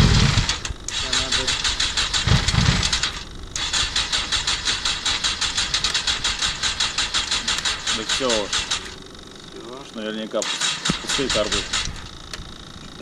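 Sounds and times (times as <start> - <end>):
engine cranking on starter: 0.0 - 9.0, 10.4 - 12.1.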